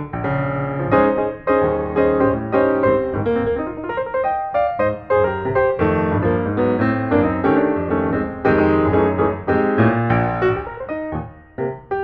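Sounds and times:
piano music: 0:00.0 - 0:12.0.

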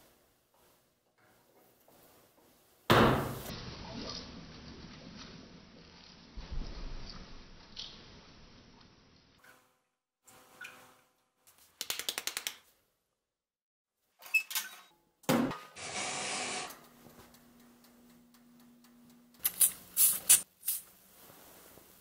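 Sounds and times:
toaster oven humming: 0:15.8 - 0:20.0
aerosol foam spraying: 0:19.4 - 0:20.9.

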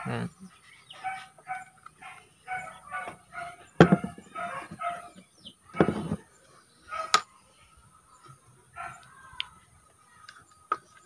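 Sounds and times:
dog barking: 0:01.0 - 0:06.0, 0:06.9 - 0:07.2, 0:08.8 - 0:09.0.

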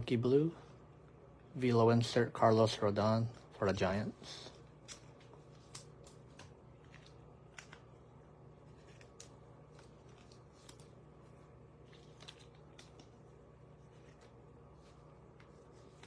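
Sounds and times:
low steady hum: 0:00.0 - 0:16.0
trading cards rustling and clicking: 0:04.4 - 0:16.0.

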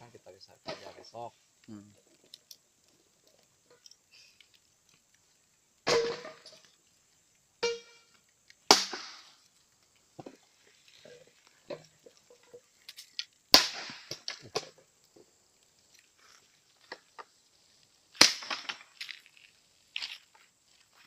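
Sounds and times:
fire crackling and popping: 0:00.0 - 0:21.0
bamboo bursting with bangs: 0:05.8 - 0:06.6, 0:08.6 - 0:09.5, 0:13.5 - 0:14.9, 0:18.1 - 0:19.0.

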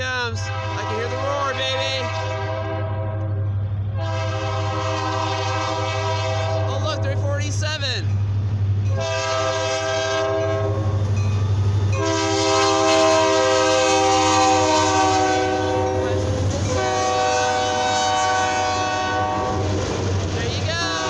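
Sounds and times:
locomotive low rumble: 0:00.0 - 0:21.0
locomotive air horn: 0:00.4 - 0:03.4, 0:04.0 - 0:06.8, 0:08.9 - 0:11.0, 0:12.0 - 0:19.6.

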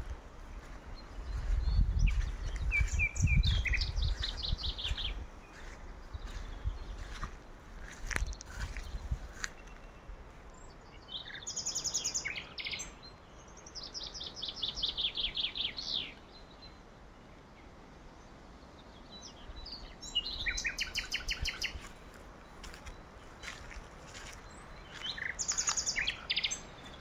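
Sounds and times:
songbirds trilling: 0:00.0 - 0:17.5, 0:18.2 - 0:27.0.

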